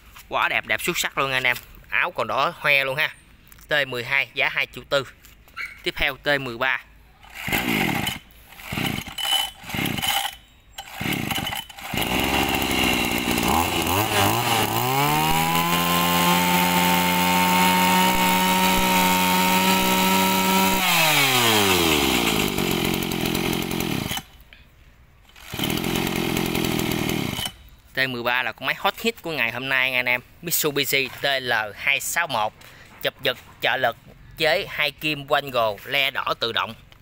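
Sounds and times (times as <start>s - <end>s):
brush cutter engine revving: 7.2s - 24.3s, 25.3s - 27.6s.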